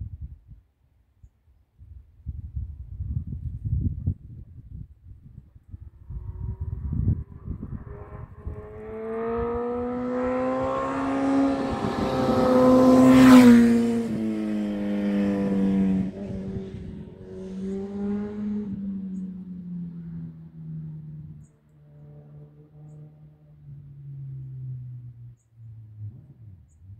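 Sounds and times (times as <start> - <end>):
motorcycle passing by: 5.6 - 25.4.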